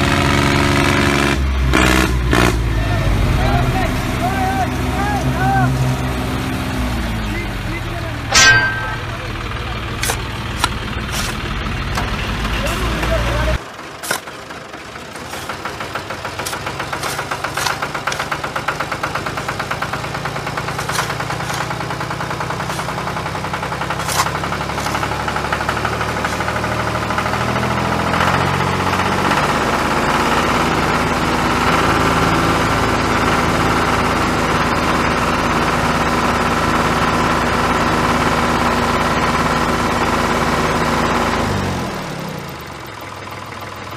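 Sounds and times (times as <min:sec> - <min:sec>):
vehicle engine idling: 0:02.6 - 0:43.9
sharp knocks: 0:08.3 - 0:09.4.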